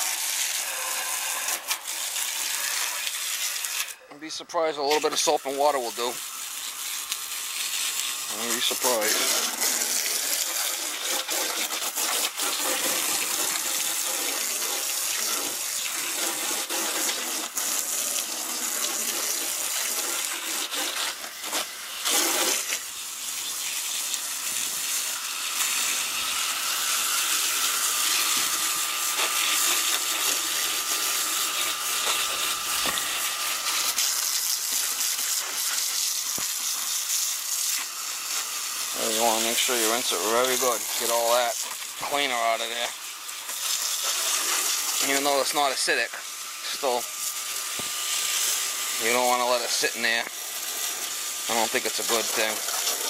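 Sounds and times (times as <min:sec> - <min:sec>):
hose water spraying on metal coil: 0:00.0 - 0:53.0.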